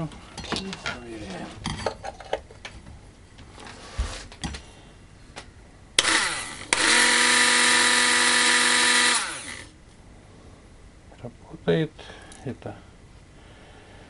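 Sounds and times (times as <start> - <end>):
hand blender motor whining: 6.0 - 9.7.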